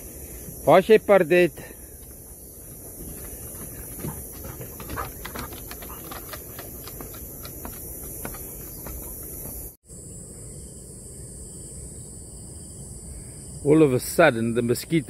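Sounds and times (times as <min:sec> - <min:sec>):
cicadas droning: 0:00.0 - 0:15.0
footsteps on wooden boardwalk: 0:01.7 - 0:09.8.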